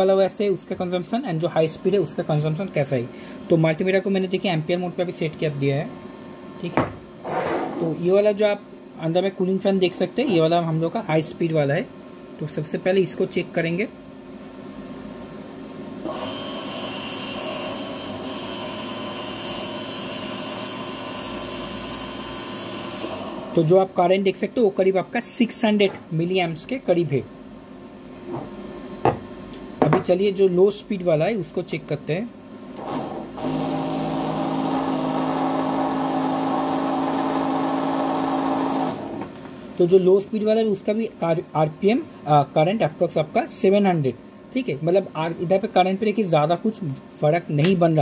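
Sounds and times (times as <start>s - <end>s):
fan air rush: 1.5s - 3.8s
electric motor whine: 16.1s - 23.6s, 32.8s - 39.2s.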